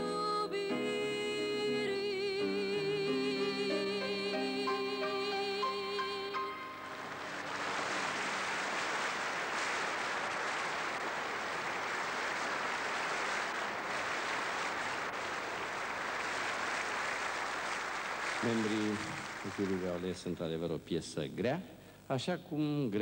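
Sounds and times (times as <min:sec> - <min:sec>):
audience applauding: 0:06.4 - 0:20.3.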